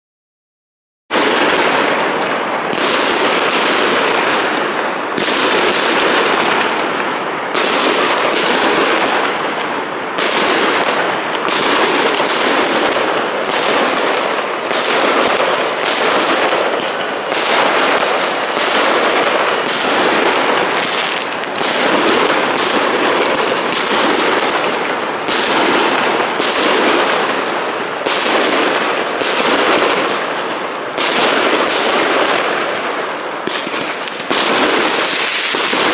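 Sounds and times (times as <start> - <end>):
fireworks bangs and crackling: 1.1 - 35.9.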